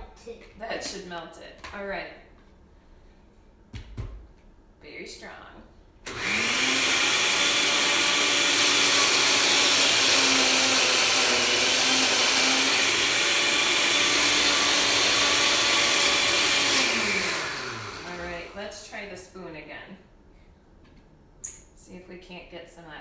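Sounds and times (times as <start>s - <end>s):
blender motor running: 6.1s - 18.6s.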